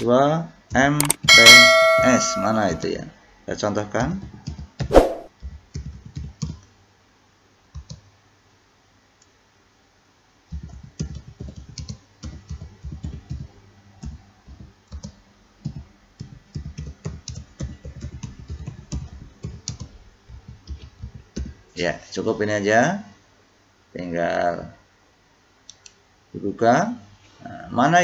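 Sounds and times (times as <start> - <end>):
typing on computer keyboard: 5.4 - 6.7, 7.7 - 8.1, 10.5 - 21.5.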